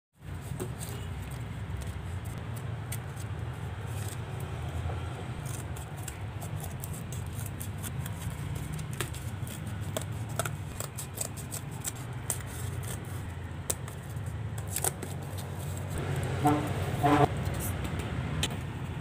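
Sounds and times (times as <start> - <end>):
scissors cutting cardboard: 0.5 - 4.8, 5.4 - 16.0.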